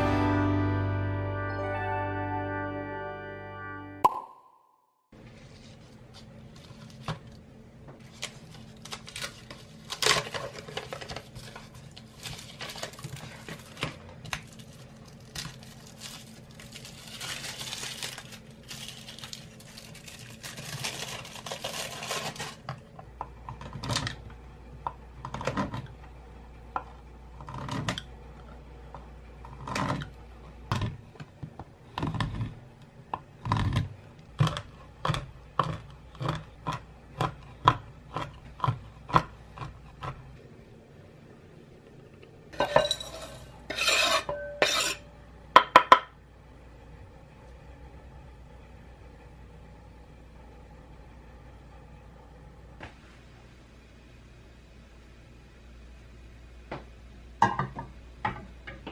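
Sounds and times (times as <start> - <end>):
paper and foil wrapper crinkling: 8.0 - 22.7.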